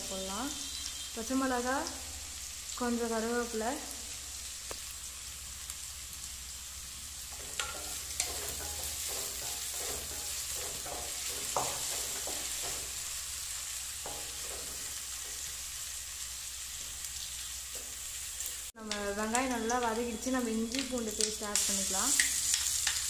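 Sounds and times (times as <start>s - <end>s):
vegetables sizzling in oil: 0.0s - 23.0s
spatula scraping a pan: 7.3s - 13.3s, 13.9s - 15.8s.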